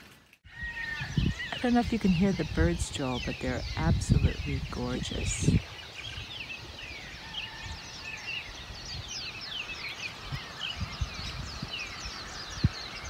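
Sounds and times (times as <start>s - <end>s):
birds chirping: 0.4s - 13.0s.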